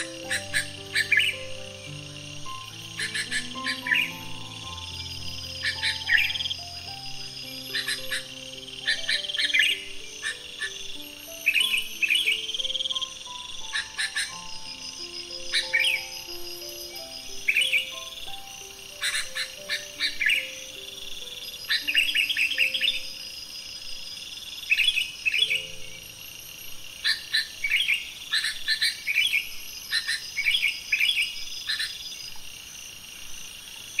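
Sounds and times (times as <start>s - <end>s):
bird singing bubbly phrases: 0.0s - 23.2s.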